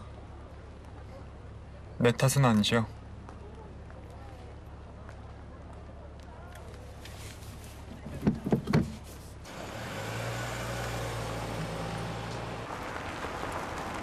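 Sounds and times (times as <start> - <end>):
tyre and road noise: 0.0 - 14.0
car engine hum: 7.9 - 14.0.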